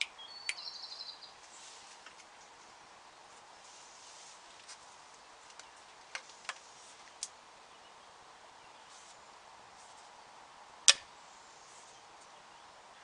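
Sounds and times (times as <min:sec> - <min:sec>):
faint outdoor background: 0:00.0 - 0:13.0.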